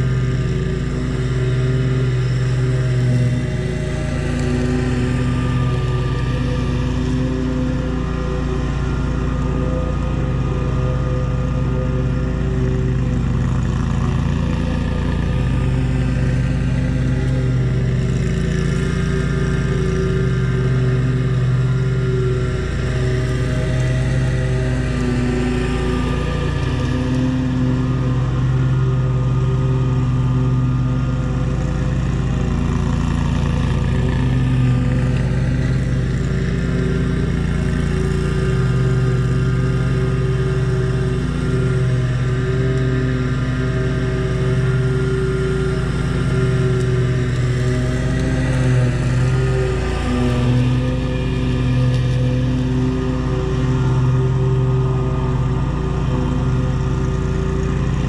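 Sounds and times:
small gasoline engine running: 0:00.0 - 0:58.0.

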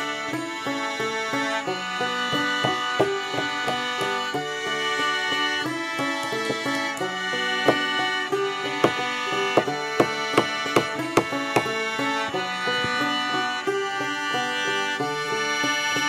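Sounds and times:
instrumental background music: 0:00.0 - 0:16.0
hammer striking nail into wood: 0:02.3 - 0:04.2, 0:06.2 - 0:07.9, 0:08.8 - 0:11.8.

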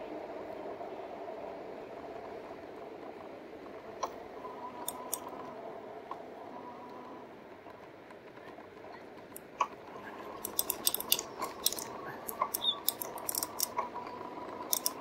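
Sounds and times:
faint steady whine: 0:00.0 - 0:15.0
bike clicks and rattles: 0:04.8 - 0:05.2, 0:09.3 - 0:13.9, 0:14.6 - 0:15.0.

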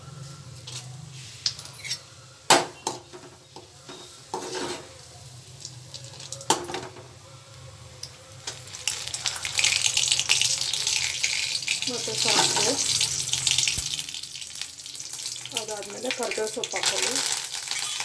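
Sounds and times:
frying sizzle: 0:00.0 - 0:07.2, 0:07.8 - 0:18.0
ladle scraping and knocking pan: 0:03.9 - 0:04.9.

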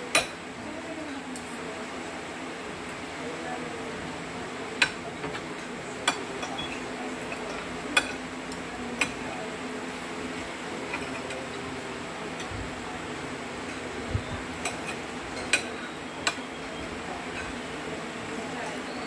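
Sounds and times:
steady background hum: 0:00.0 - 0:19.0
cutlery clinking against plates: 0:04.8 - 0:09.3, 0:10.8 - 0:11.6, 0:14.6 - 0:16.5, 0:17.2 - 0:17.6.

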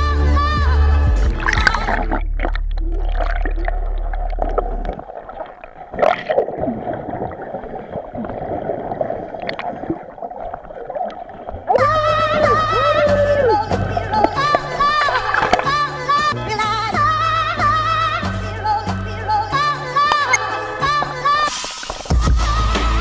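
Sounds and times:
background music: 0:00.0 - 0:02.6, 0:11.8 - 0:23.0
underwater gurgling and bubbling: 0:01.0 - 0:16.4, 0:19.5 - 0:22.3.

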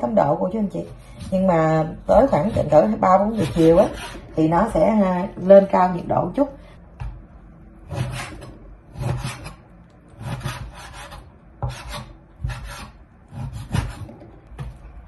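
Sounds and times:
knife scraping cutting board: 0:00.7 - 0:04.4, 0:07.8 - 0:09.6, 0:10.2 - 0:14.2
knife sawing through meat: 0:03.2 - 0:04.2.

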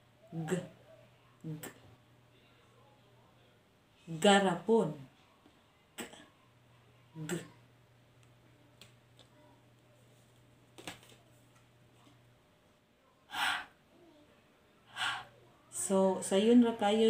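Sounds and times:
low steady hum: 0:00.0 - 0:17.0
woman breathy puff: 0:13.3 - 0:13.7.

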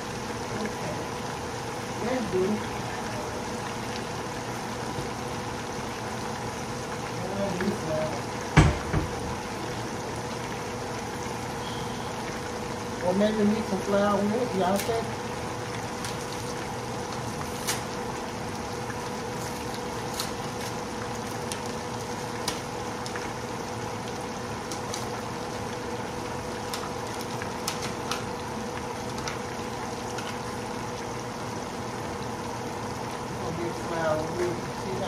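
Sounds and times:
meat frying in hot oil: 0:00.0 - 0:35.0
sharp pops and crackles: 0:15.9 - 0:18.0, 0:19.4 - 0:23.4, 0:24.0 - 0:25.3, 0:26.6 - 0:30.5.

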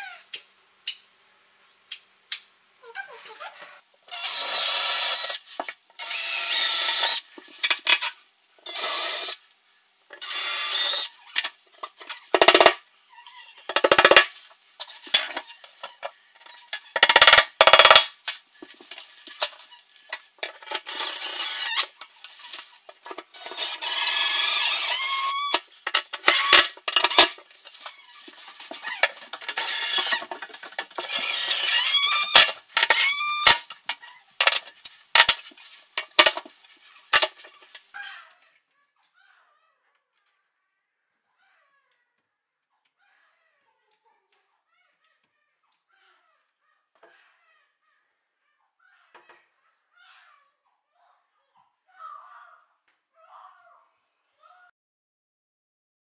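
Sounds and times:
cordless drill into wall: 0:04.1 - 0:05.4, 0:06.0 - 0:07.2, 0:08.7 - 0:09.4, 0:10.2 - 0:11.1, 0:20.8 - 0:21.9, 0:23.4 - 0:25.6, 0:29.5 - 0:30.3, 0:31.0 - 0:33.6
drill driving screws: 0:04.1 - 0:07.2, 0:08.6 - 0:09.4, 0:10.2 - 0:11.2, 0:20.7 - 0:21.9, 0:23.3 - 0:27.4, 0:29.4 - 0:33.7.

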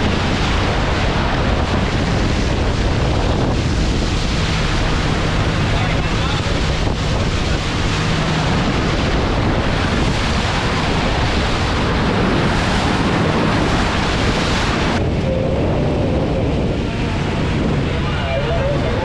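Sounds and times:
low rumble: 0:00.0 - 0:19.0
water rushing against boat hull: 0:00.0 - 0:19.0
wind buffeting microphone: 0:00.0 - 0:19.0.

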